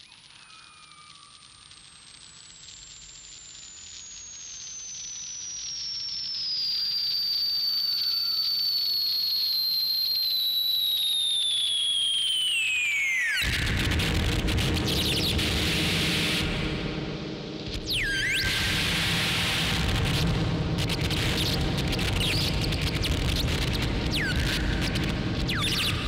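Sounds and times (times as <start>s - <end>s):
whistle-like tone gliding downward: 4.6s - 13.7s, 17.8s - 19.8s, 21.3s - 23.5s, 24.1s - 26.0s.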